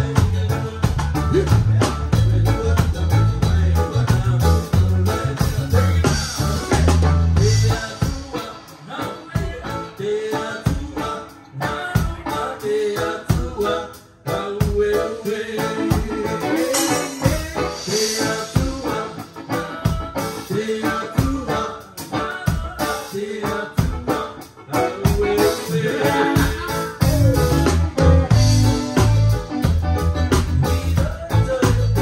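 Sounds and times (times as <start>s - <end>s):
live band playing: 0.0s - 32.0s
drum beat: 15.9s - 19.0s, 26.1s - 32.0s.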